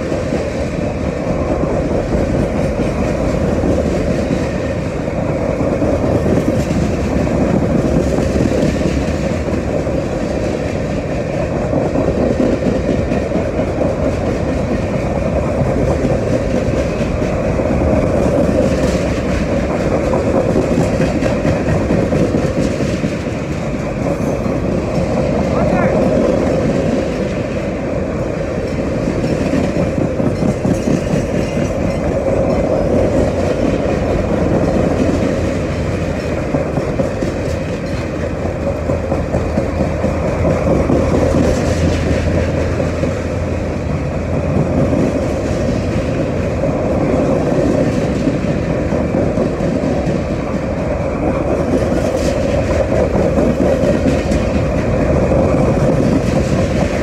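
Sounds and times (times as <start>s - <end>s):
freight train wheels clattering: 0.0s - 57.0s.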